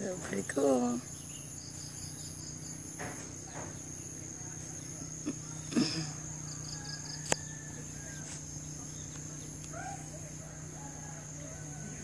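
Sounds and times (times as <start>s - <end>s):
high-pitched insect drone: 0.0s - 12.0s.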